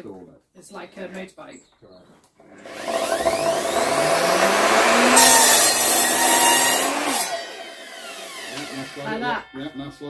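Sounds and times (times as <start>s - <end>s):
saw cutting timber: 2.5s - 9.8s
mitre saw motor whine: 2.6s - 9.7s.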